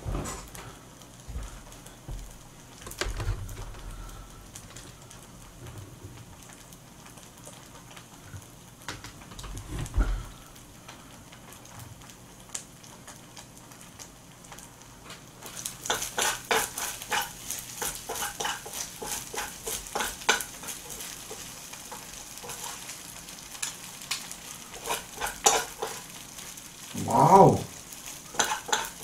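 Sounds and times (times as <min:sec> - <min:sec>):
rice sizzling in a frying pan: 0:00.0 - 0:29.0
metal spoons scraping a pan: 0:15.8 - 0:22.8, 0:24.8 - 0:26.0, 0:28.3 - 0:29.0.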